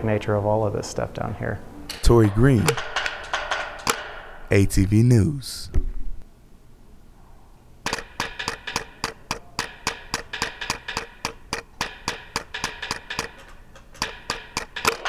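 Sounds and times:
mallet knocking hollow gourds: 7.9s - 15.0s.

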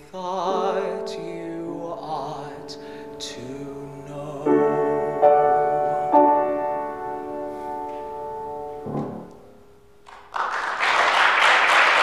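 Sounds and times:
grand piano chord ringing: 0.0s - 9.9s
applause: 10.0s - 12.0s.

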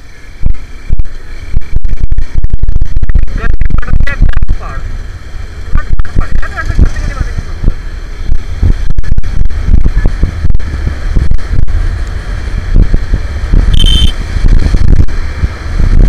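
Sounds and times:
motorcycle engine: 0.0s - 16.0s
road noise: 0.0s - 16.0s
wind buffeting microphone: 0.0s - 16.0s
short high steady tone: 13.6s - 14.2s.

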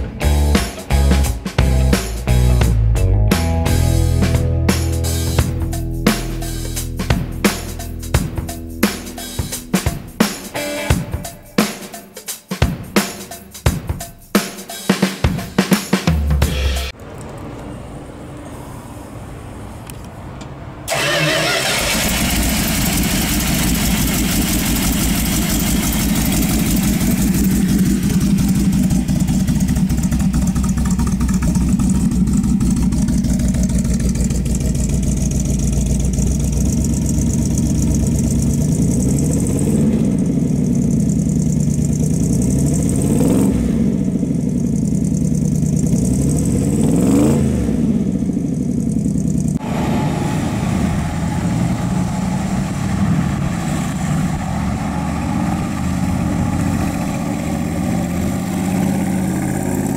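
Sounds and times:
truck engine cranking and idling: 19.8s - 59.9s
engine revving: 20.8s - 59.9s.

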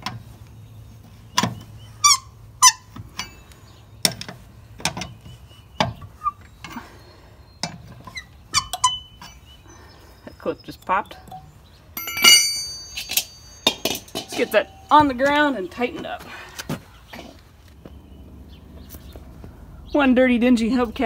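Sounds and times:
wrench clanking on metal: 7.6s - 9.5s, 11.2s - 15.5s
short high squeaks: 8.1s - 9.5s.

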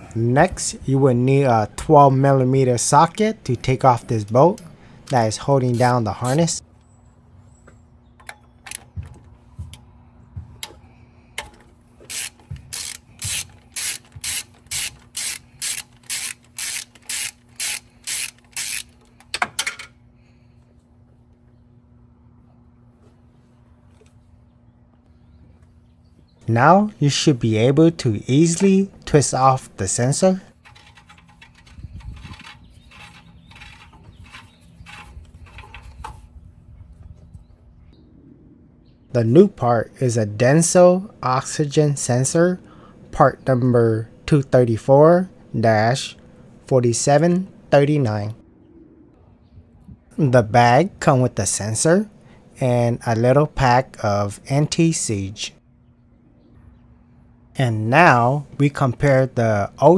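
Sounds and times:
sensor scraping in threads: 12.0s - 19.2s, 30.0s - 36.3s
ratchet clicking: 12.1s - 19.2s.

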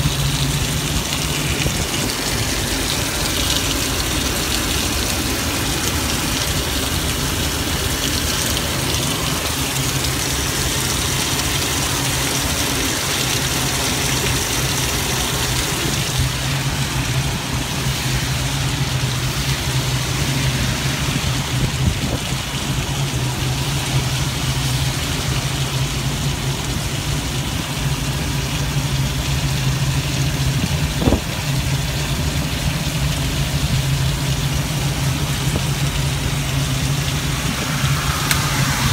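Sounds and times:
rain on shell: 0.0s - 38.9s
tyre spray hiss: 34.5s - 38.9s.

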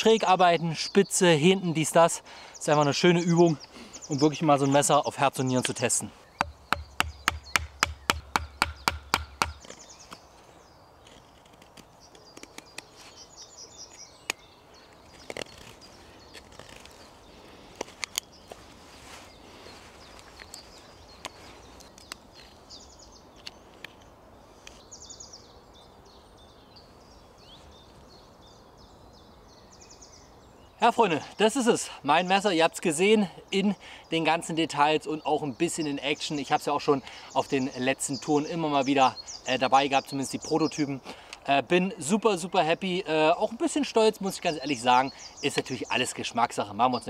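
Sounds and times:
bird chirps: 2.4s - 11.3s, 12.0s - 17.4s, 35.0s - 47.0s.

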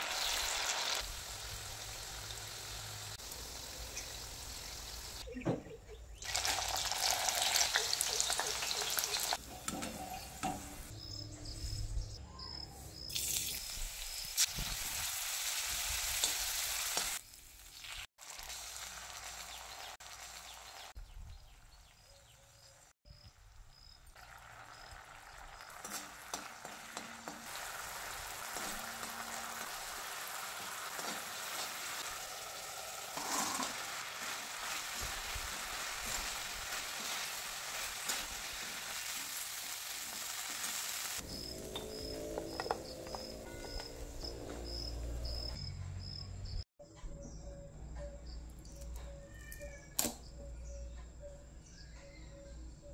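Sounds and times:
oil sizzling in a wok: 0.0s - 5.2s, 6.2s - 10.9s, 13.0s - 21.0s, 23.7s - 44.9s
metal spoon scraping wok: 25.8s - 35.0s.

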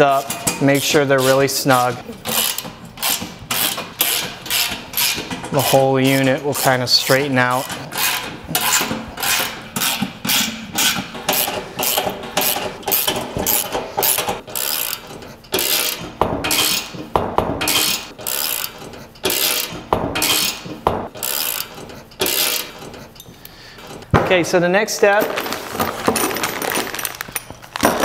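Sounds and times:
socket ratchet clicking: 17.7s - 24.0s.

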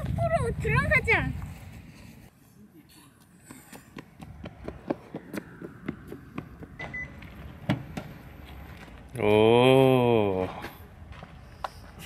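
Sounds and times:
footsteps of people walking: 1.3s - 9.2s, 10.3s - 12.0s.

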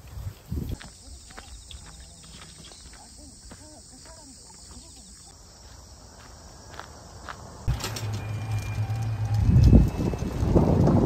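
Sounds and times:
wind rumble on microphone: 0.0s - 0.8s, 8.4s - 11.0s
insects chirring: 0.1s - 10.8s.

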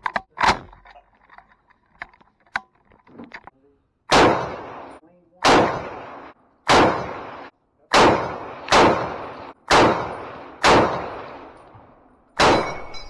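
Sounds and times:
rifle shots: 4.1s - 11.6s, 12.4s - 13.0s.

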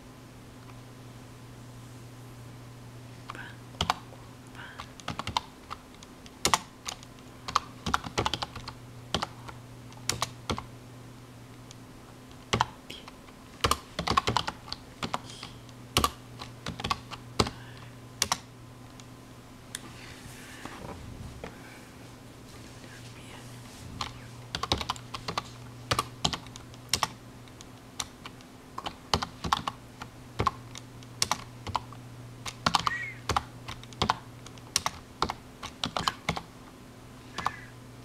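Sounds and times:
steady low hum: 0.0s - 38.0s
typing on computer keyboard: 3.8s - 4.0s, 4.8s - 9.3s, 10.1s - 10.7s, 12.5s - 12.7s, 13.6s - 15.2s, 16.0s - 17.6s, 18.2s - 18.4s, 24.0s - 27.2s, 28.0s - 29.8s, 30.4s - 36.5s.

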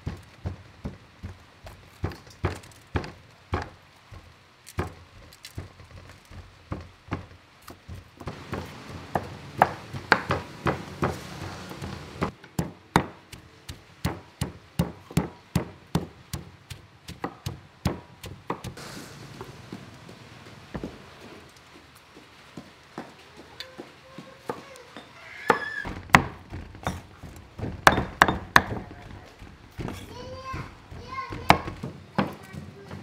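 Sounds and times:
knife chopping on wooden board: 8.2s - 13.4s.

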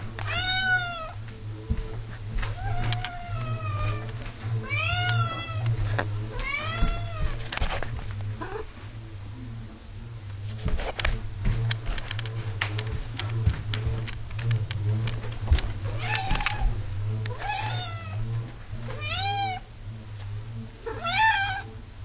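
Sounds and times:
steady low hum: 0.0s - 22.0s
cat meowing: 0.3s - 1.2s, 20.9s - 21.7s.

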